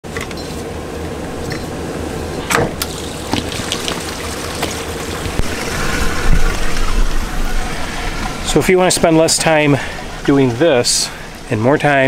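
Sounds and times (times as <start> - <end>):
waste water rushing through hose: 2.7 - 12.0
short falling squeal: 5.6 - 8.5.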